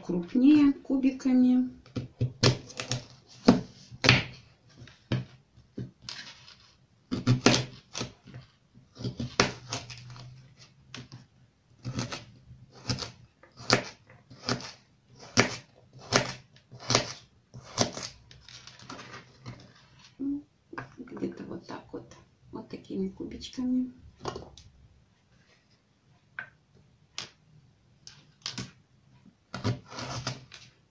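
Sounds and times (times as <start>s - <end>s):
knife chopping on cutting board: 7.1s - 8.2s, 11.8s - 18.1s.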